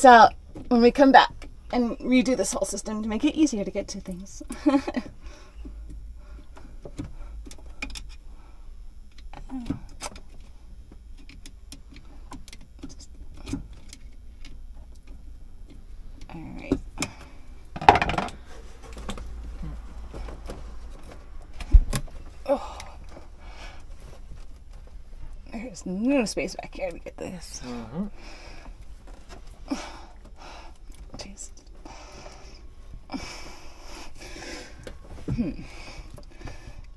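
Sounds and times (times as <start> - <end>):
faint low hum: 0.0 - 36.9.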